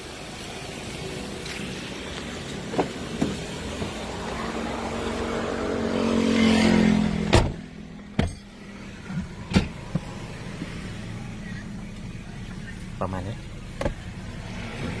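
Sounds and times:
car door slamming: 7.2s - 8.4s, 9.2s - 10.2s, 13.7s - 14.1s
diesel engine idling: 7.7s - 15.0s.

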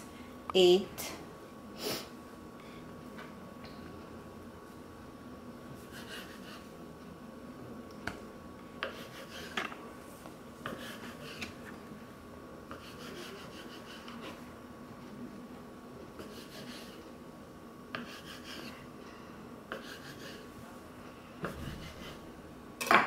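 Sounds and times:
faint steady hum: 0.0s - 23.0s
knife scraping dough on wood: 5.8s - 6.7s, 8.8s - 9.8s, 10.6s - 11.6s, 12.7s - 14.4s, 16.2s - 17.1s, 17.9s - 18.8s, 19.7s - 20.5s, 21.4s - 22.2s.

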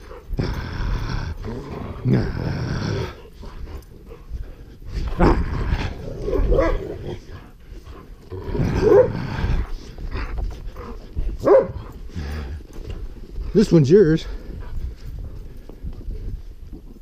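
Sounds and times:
dogs growling: 0.0s - 17.0s.

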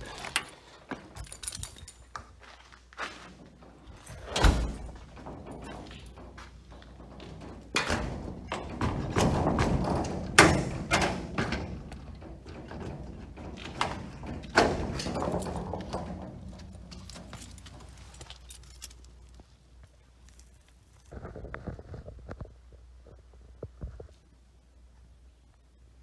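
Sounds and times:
metal roll-up door rattling: 3.5s - 18.8s.

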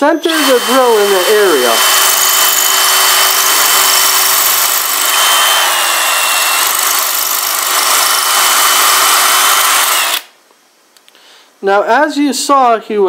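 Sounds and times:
hammer drill drilling into brick: 0.0s - 10.3s.

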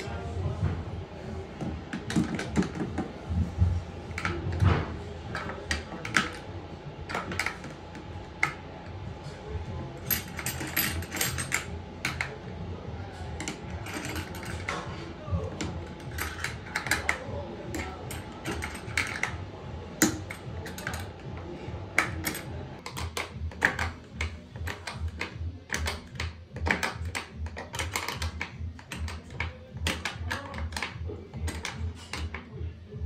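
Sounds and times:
steady low hum: 0.0s - 33.0s
pliers clicking and scraping: 22.0s - 32.6s.

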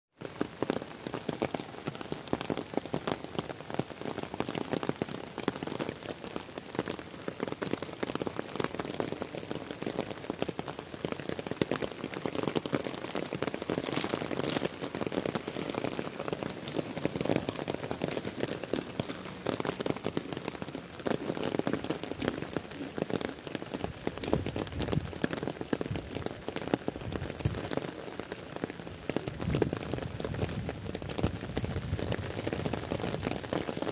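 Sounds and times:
heavy rain falling: 0.2s - 33.9s.

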